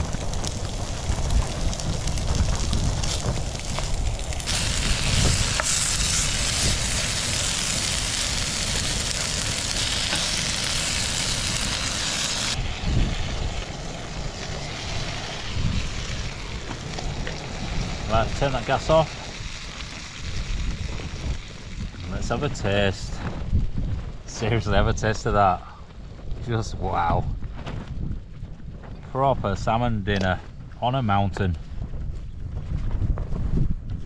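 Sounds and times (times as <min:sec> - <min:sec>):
food sizzling in a frying pan: 0:00.0 - 0:23.1.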